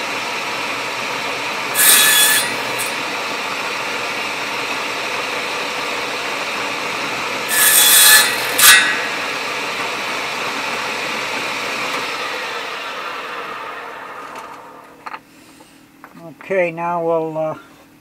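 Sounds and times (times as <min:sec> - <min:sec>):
table saw running: 0:00.0 - 0:15.0
saw blade cutting wood: 0:01.4 - 0:14.9.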